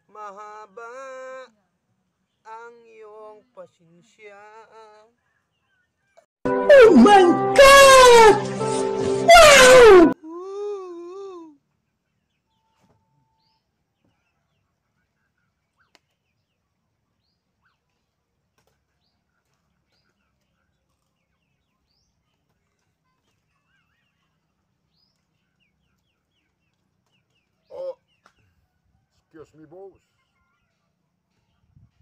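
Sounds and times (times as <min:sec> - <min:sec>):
faint bird chirps: 0:11.8 - 0:18.2, 0:27.4 - 0:29.4.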